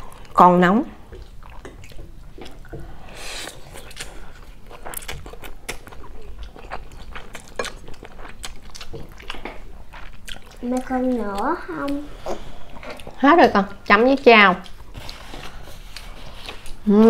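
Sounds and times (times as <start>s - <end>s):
chewing with wet mouth clicks: 1.1s - 15.2s.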